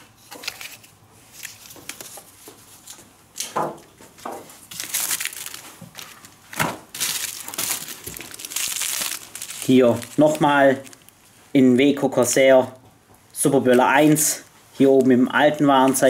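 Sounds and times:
wrappers rustling and crinkling: 4.5 - 11.4, 13.3 - 16.0.

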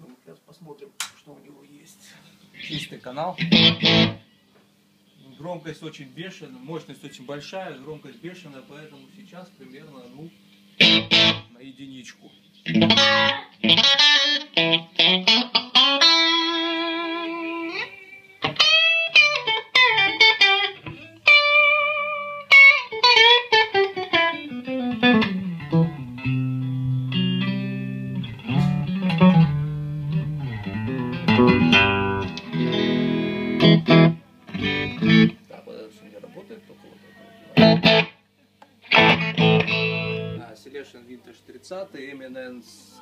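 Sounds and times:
clean electric guitar playing: 2.6 - 4.2, 10.8 - 11.5, 12.6 - 35.4, 37.5 - 38.2, 38.9 - 40.4.

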